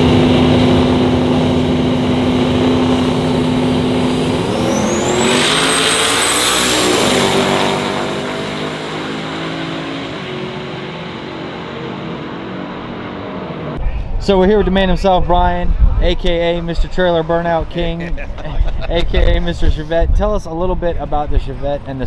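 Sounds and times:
car engine running: 0:00.0 - 0:13.8
car driving past: 0:02.4 - 0:13.8.

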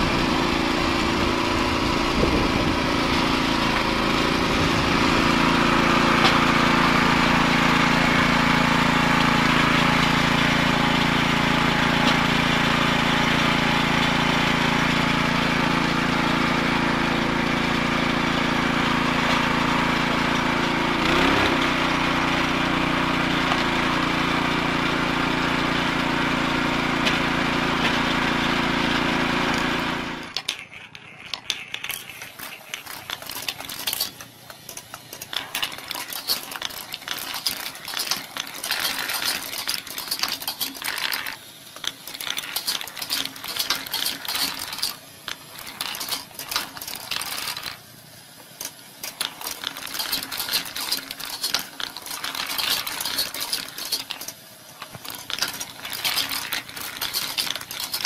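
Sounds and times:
small petrol engine running: 0:00.0 - 0:58.0
steel balls clicking through marble machine: 0:30.3 - 0:47.8, 0:48.4 - 0:58.0.

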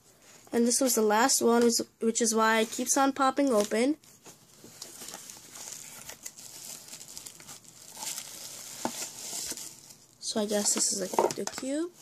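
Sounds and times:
packaging crinkling and rustling: 0:02.5 - 0:11.5.

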